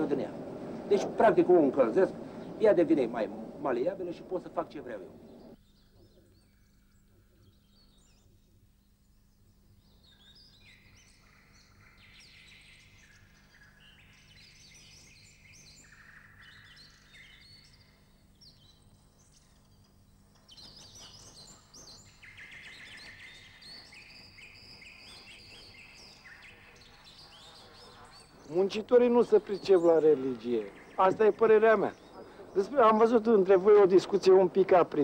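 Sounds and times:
steady low hum: 0.0s - 5.6s
small birds chirping: 0.0s - 35.0s.

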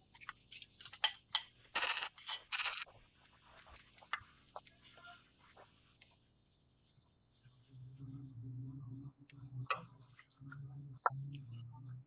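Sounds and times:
low steady hum: 6.6s - 12.0s.

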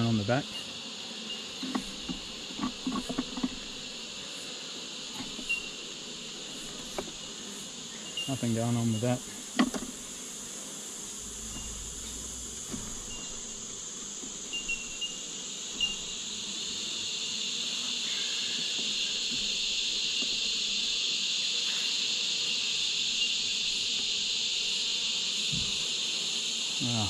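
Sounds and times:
high-pitched insect chorus: 0.0s - 27.0s
wooden hive frames knocking: 1.4s - 4.2s, 5.0s - 11.7s, 12.3s - 16.2s, 18.6s - 20.7s.

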